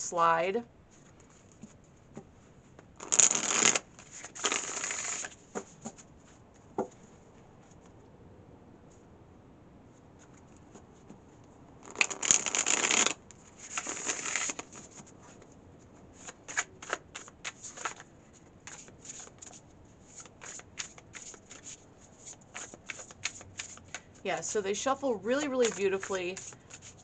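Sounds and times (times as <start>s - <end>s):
cards riffling: 3.0s - 6.0s, 11.8s - 15.1s, 16.2s - 24.2s, 25.4s - 27.0s.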